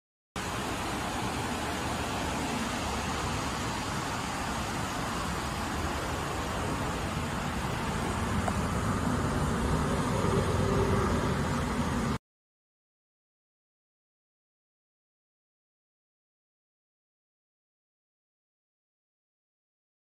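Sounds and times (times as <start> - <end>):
motor vehicle rumble: 2.5 - 12.2.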